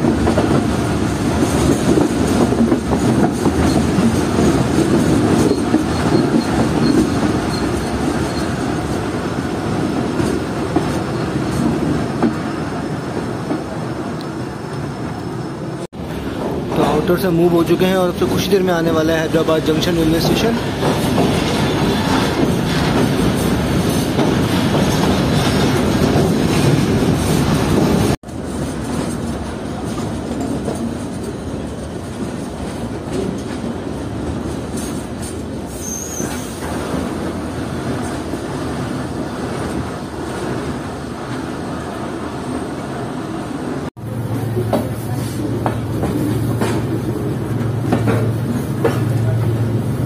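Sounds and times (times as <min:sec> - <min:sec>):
train wheels rumbling on rails: 0:00.0 - 0:50.0
high wheel squeal: 0:05.4 - 0:08.6, 0:35.7 - 0:36.6.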